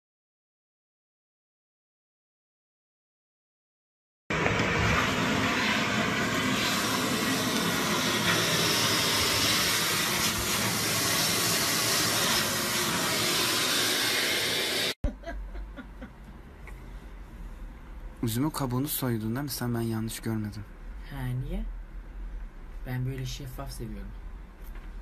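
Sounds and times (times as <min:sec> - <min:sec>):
cleaning appliance loud hiss: 0:04.4 - 0:15.0.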